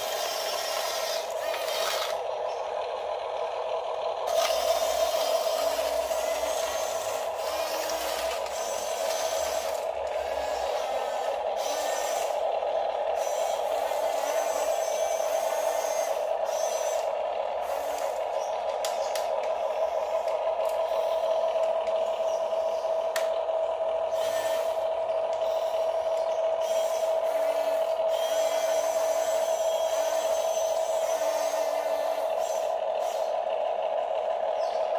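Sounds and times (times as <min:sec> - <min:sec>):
electric motors whining: 0:00.0 - 0:34.9.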